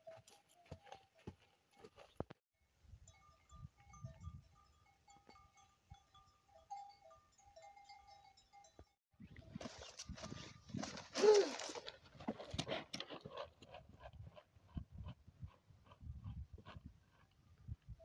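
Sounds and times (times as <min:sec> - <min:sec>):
goat bells ringing: 0:02.9 - 0:09.0
wind rumble on microphone: 0:14.1 - 0:18.0.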